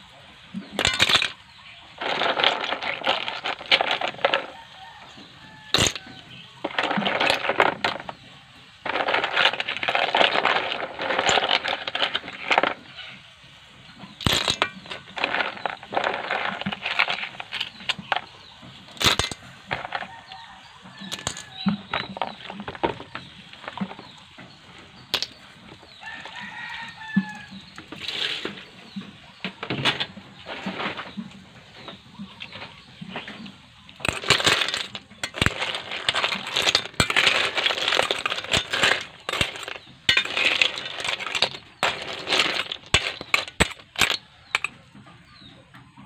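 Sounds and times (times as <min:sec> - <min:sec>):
chickens clucking: 0:10.6 - 0:34.0, 0:34.9 - 0:46.0
sharp clicks and knocks: 0:14.0 - 0:46.0
rooster crowing: 0:26.0 - 0:27.5.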